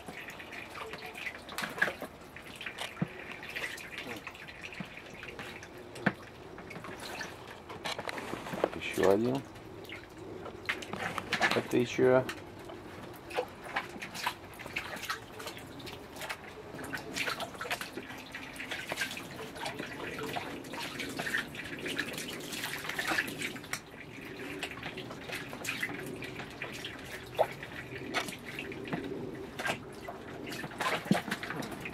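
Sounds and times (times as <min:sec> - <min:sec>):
small splashes and drips: 0:00.0 - 0:31.9
water sloshing in plastic basin: 0:00.0 - 0:31.9.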